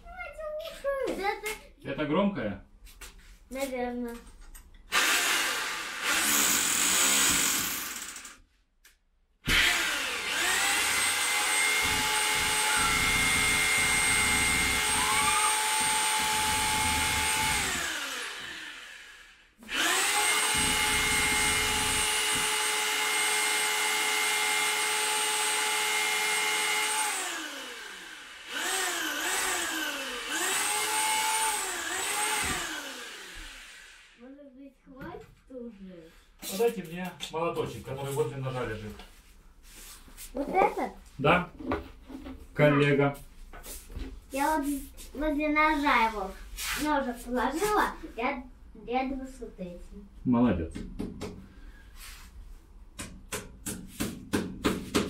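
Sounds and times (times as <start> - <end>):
electric drill boring into wall: 4.9 - 8.4, 9.4 - 34.2.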